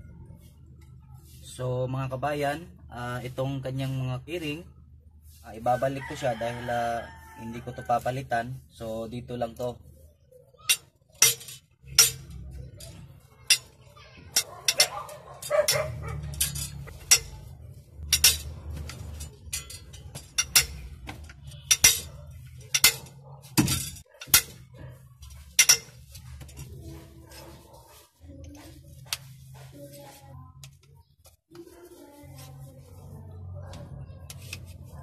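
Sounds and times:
metal parts clinking: 10.7s - 24.6s, 25.2s - 26.7s.

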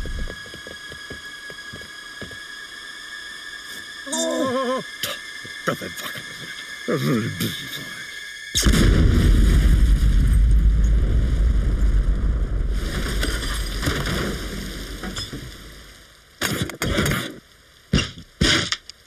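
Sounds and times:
deep rumbling explosion: 8.6s - 15.0s.

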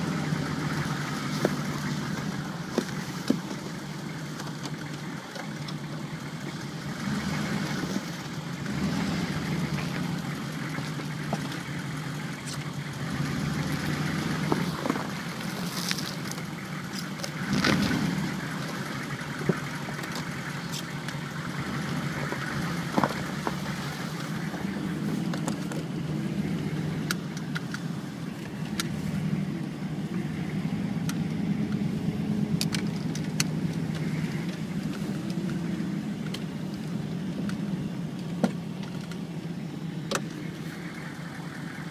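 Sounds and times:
car engine humming: 0.0s - 41.9s
sharp clicks: 32.6s - 35.6s.

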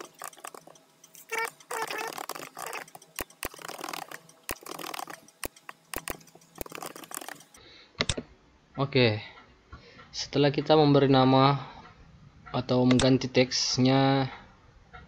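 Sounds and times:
sped-up keyboard typing: 0.0s - 7.6s.

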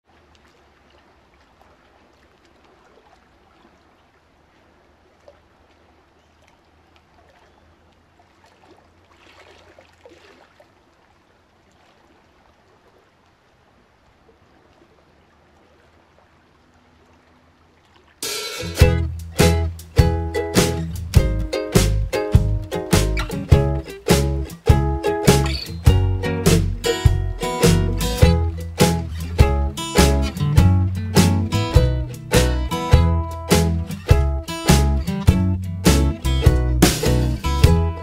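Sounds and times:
faint steady hiss: 10.9s - 38.0s
song with plucked notes and beats: 18.2s - 38.0s.

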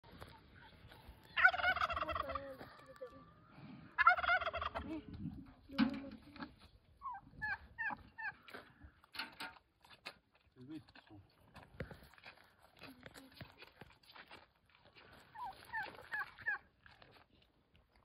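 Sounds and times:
turkey gobbling: 0.2s - 4.9s, 6.9s - 8.7s, 15.3s - 16.7s.

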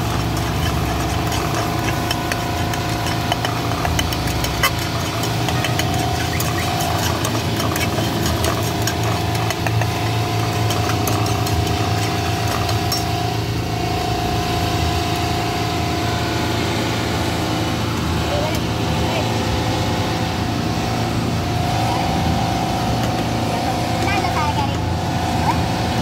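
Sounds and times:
metal spatula scraping a pan: 0.0s - 13.5s
engine-like low rumble: 0.0s - 26.0s.

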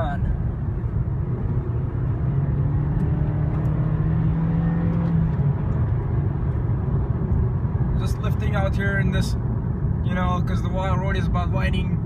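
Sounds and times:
car engine and road noise: 0.0s - 12.0s.

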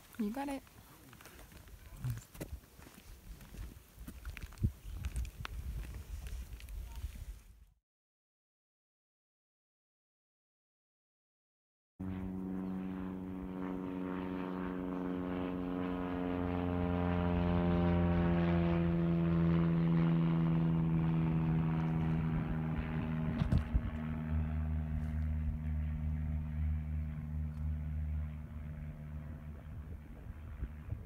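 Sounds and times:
propeller aircraft flying past: 0.1s - 2.2s, 12.0s - 31.0s.

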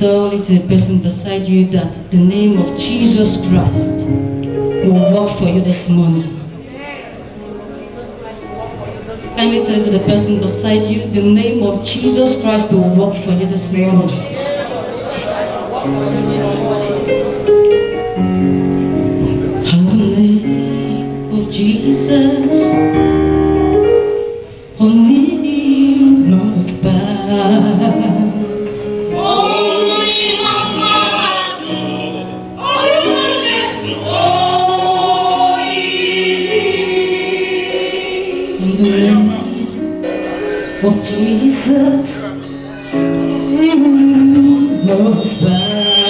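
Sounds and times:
held instrumental chords: 2.0s - 45.8s
woman singing lead: 19.6s - 23.0s, 24.8s - 40.1s, 40.8s - 42.6s, 43.3s - 46.0s
choir singing gospel: 24.8s - 46.0s.

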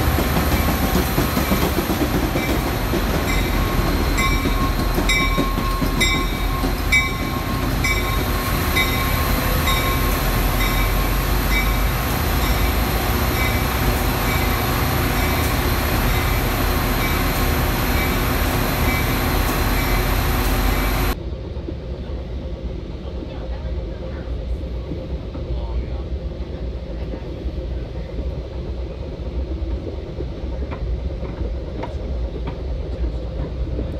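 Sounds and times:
diesel locomotive rumbling: 0.0s - 33.9s
locomotive bell ringing: 2.3s - 21.2s.

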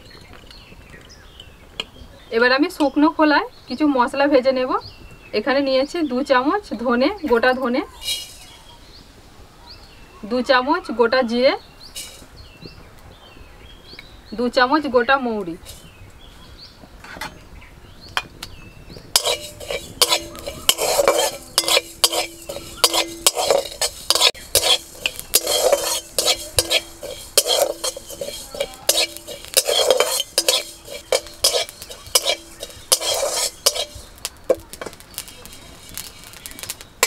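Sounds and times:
metal spatula scraping pan: 8.0s - 8.7s, 12.0s - 12.3s, 15.6s - 15.9s, 19.1s - 37.0s
seeds rattling: 8.0s - 8.7s, 12.0s - 12.3s, 19.2s - 37.0s.

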